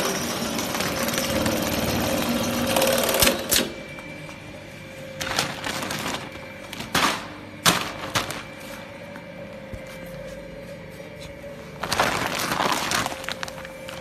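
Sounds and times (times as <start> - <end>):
sewing machine stitching a sack: 0.0 - 3.7
steady motor hum: 0.0 - 14.0.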